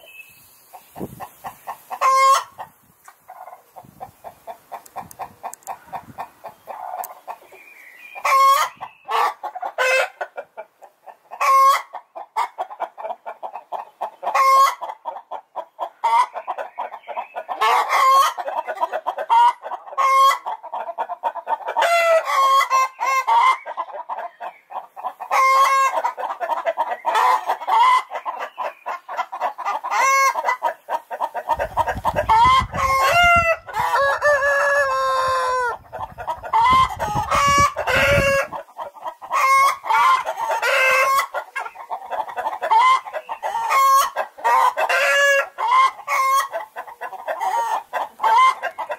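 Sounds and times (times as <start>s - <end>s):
chickens clucking: 0.0s - 48.9s
rooster crowing: 32.8s - 35.8s.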